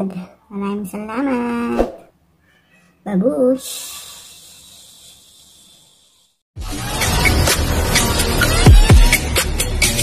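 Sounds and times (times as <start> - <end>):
electronic music with heavy beat: 6.6 - 10.0.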